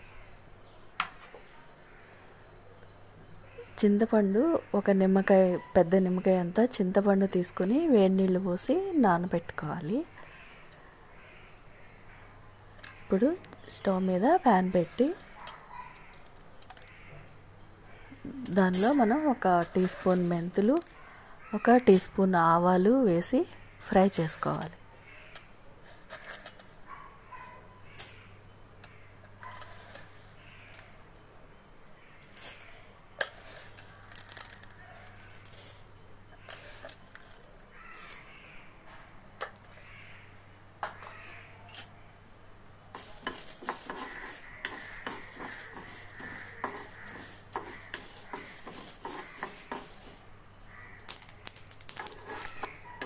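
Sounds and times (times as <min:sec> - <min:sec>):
spoon stirring rattling seeds: 0:18.4 - 0:21.0, 0:21.6 - 0:22.4, 0:29.6 - 0:31.0, 0:32.2 - 0:38.4, 0:43.0 - 0:50.3, 0:51.1 - 0:53.0
seeds roasting in a pan: 0:18.5 - 0:21.0, 0:29.6 - 0:31.0, 0:31.9 - 0:38.7, 0:42.9 - 0:53.0.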